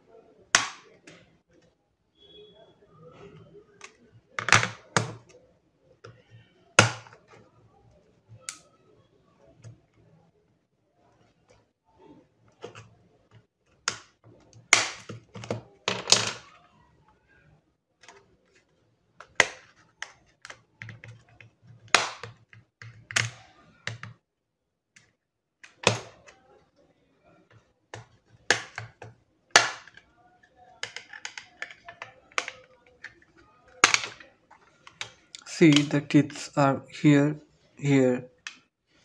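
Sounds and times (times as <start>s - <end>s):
scraping and handling noise: 11.1s - 16.7s, 29.8s - 36.5s
plastic cover clicking and snapping: 30.8s - 36.0s.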